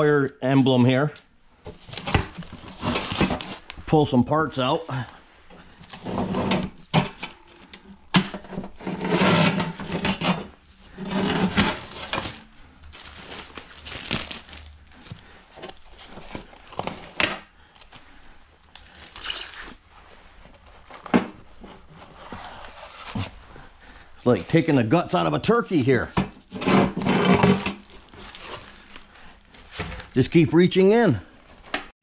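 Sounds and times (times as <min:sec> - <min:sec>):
plastic wrapping crinkling: 0:01.6 - 0:03.9, 0:11.8 - 0:26.5, 0:27.5 - 0:30.3.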